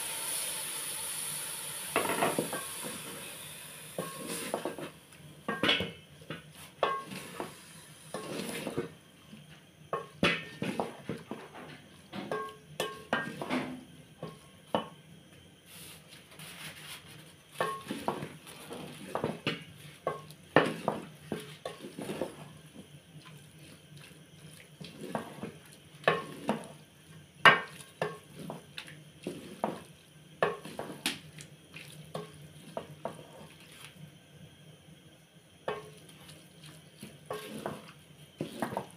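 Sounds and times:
wooden stick scraping a pot: 8.1 - 8.8, 37.3 - 37.8.

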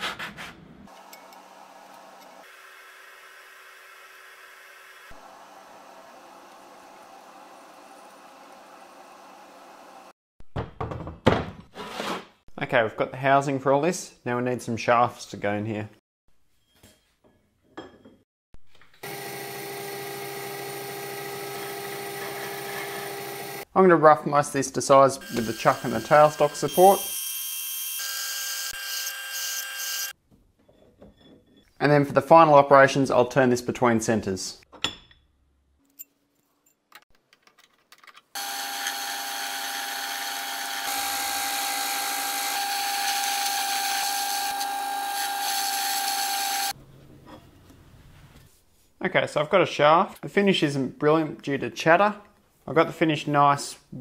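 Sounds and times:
metal lathe cutting: 38.4 - 46.7.

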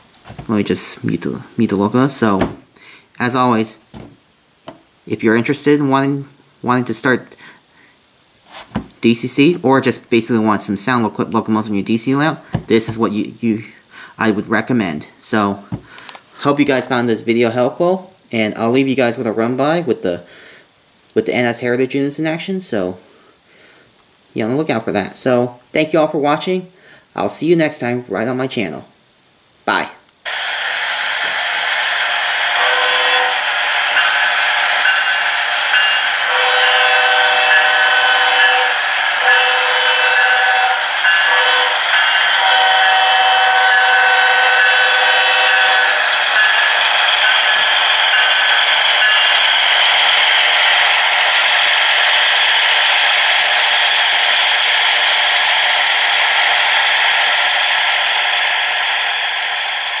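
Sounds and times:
diesel locomotive engine from speaker: 30.3 - 60.0
multi-note train horn: 32.6 - 33.3, 36.3 - 46.0.

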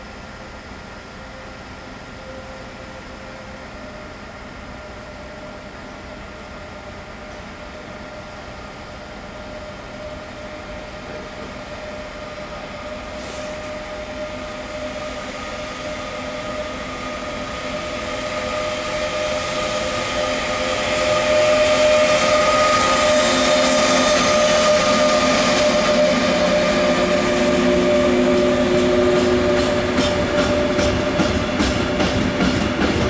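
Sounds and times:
electric locomotive whine: 0.0 - 33.0
wheels rumbling on rails: 12.1 - 33.0.

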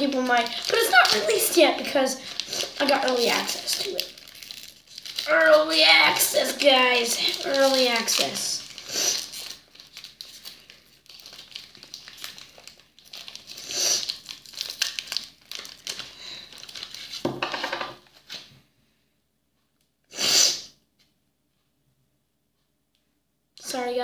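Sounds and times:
candy wrapper tearing and crinkling: 0.0 - 17.2.

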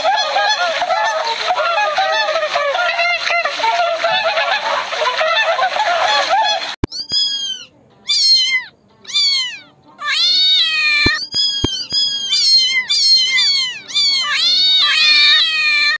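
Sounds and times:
cat meowing: 6.8 - 16.0
sharp clicks: 11.0 - 12.5.

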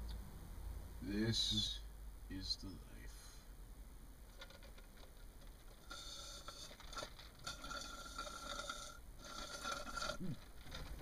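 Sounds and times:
slurping drink through a straw: 5.8 - 10.5.

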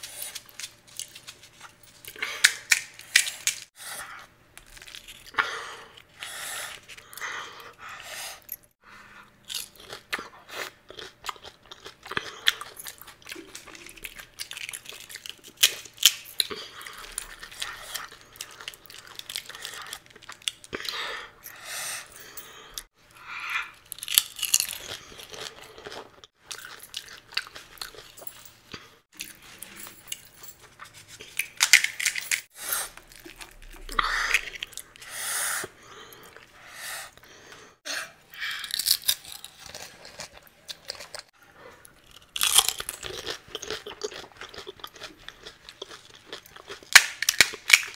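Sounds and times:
crisp shells cracking and crunching: 4.6 - 5.4, 11.0 - 20.8, 23.8 - 28.2, 38.5 - 41.3, 42.0 - 47.9
chewing crunches: 9.3 - 21.0, 23.6 - 31.6, 32.9 - 36.5, 38.4 - 47.9.

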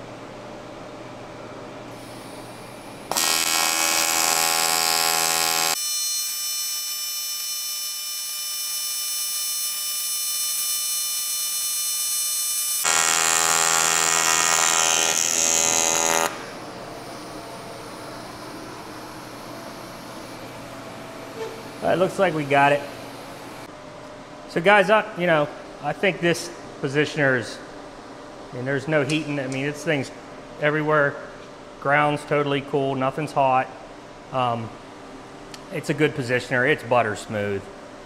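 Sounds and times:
welding arc buzzing: 2.0 - 23.7.

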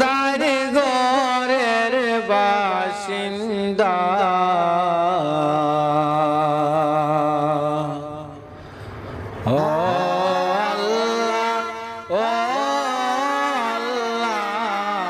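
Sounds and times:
man singing solo: 9.5 - 15.0.

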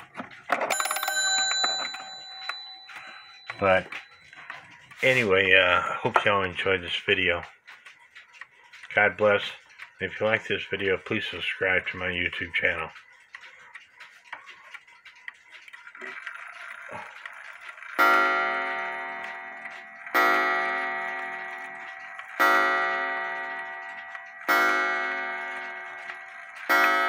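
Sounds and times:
clock ticking: 0.0 - 27.0
clock striking wire gong: 17.2 - 27.0.

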